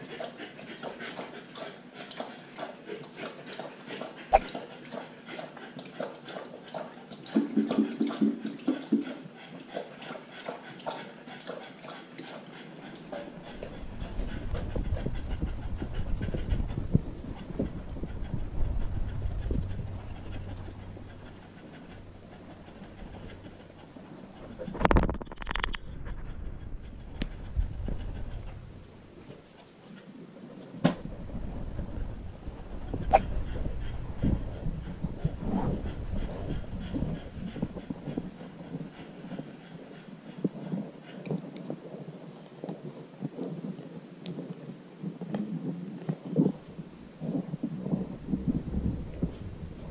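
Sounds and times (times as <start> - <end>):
dog panting quickly: 0.0 - 25.2, 25.8 - 44.8, 46.0 - 49.9
camera rubbing rumble: 13.4 - 29.5, 31.0 - 39.0, 45.5 - 49.9.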